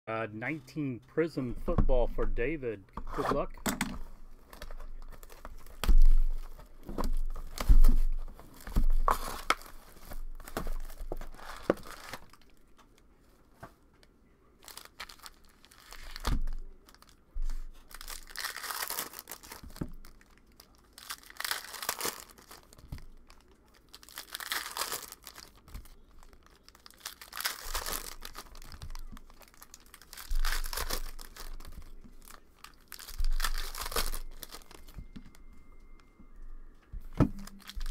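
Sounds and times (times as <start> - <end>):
plastic wrappers tearing and crinkling: 4.4 - 13.0, 14.6 - 35.5, 37.2 - 37.9.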